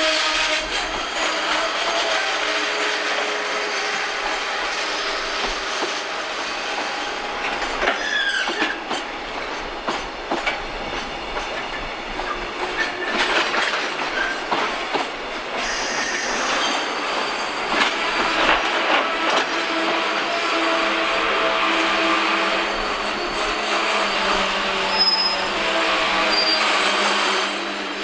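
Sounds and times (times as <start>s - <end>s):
train wheels clacking over rail joints: 0.3s - 21.0s
wheel squeals: 7.9s - 8.8s, 22.6s - 25.6s, 26.3s - 26.8s.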